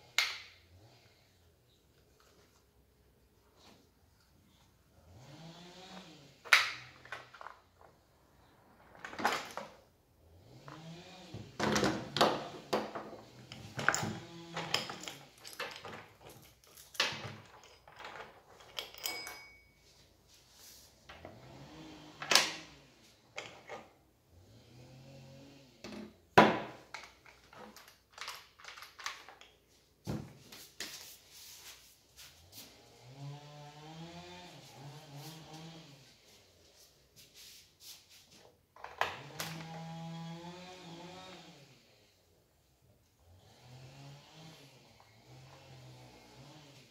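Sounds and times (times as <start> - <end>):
chainsaw parts clattering: 11.7 - 19.6, 26.4 - 29.6
saw chain clinking: 13.5 - 19.9.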